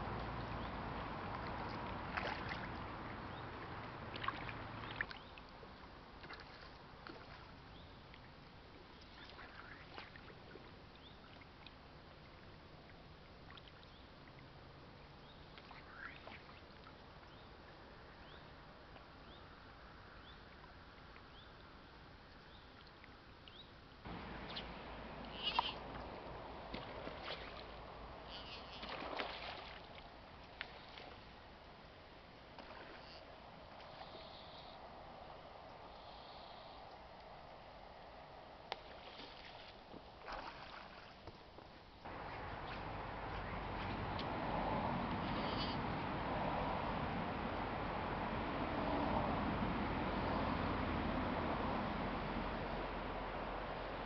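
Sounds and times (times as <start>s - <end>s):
faint hiss: 14.8s - 43.9s, 45.2s - 46.0s
short chirps: 25.3s - 25.8s.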